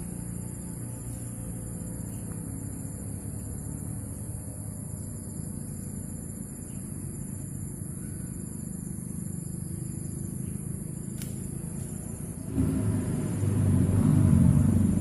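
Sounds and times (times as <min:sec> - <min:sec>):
low rumble: 0:12.0 - 0:15.0.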